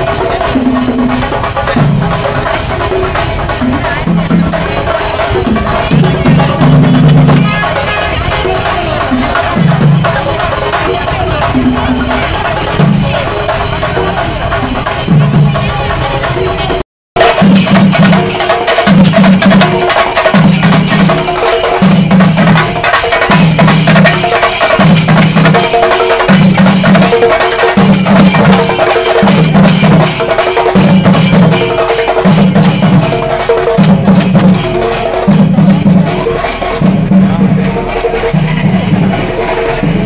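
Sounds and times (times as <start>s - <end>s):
deep drum beats: 0.0s - 40.0s.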